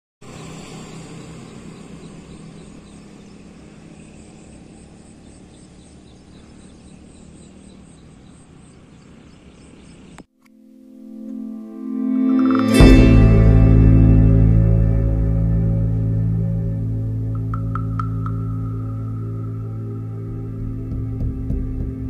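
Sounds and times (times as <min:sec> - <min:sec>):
low rumble and hiss: 0:13.3 - 0:21.2.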